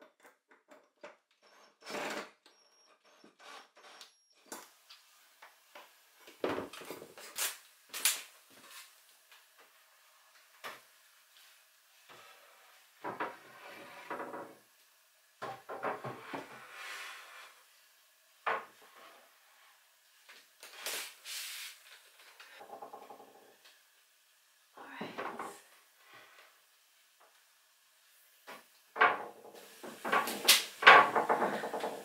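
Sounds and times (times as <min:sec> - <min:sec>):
boards scraping: 0:13.0 - 0:14.5, 0:15.8 - 0:17.6
wooden boards knocking: 0:29.0 - 0:32.0.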